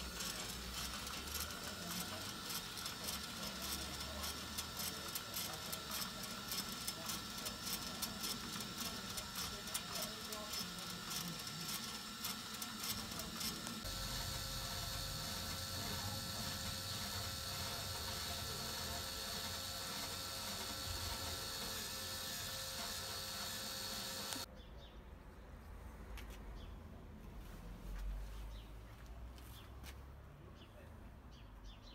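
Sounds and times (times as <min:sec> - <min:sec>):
gear wheel clicking: 0:00.0 - 0:24.5
rotisserie motor whirring: 0:00.0 - 0:24.5.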